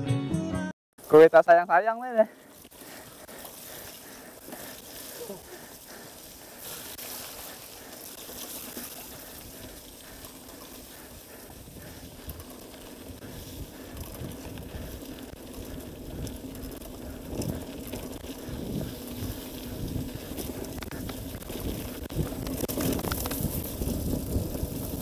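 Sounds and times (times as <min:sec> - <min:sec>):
bike rattling: 0:01.0 - 0:25.0
bike tyres through mud: 0:01.0 - 0:25.0
wind on microphone: 0:13.2 - 0:25.0.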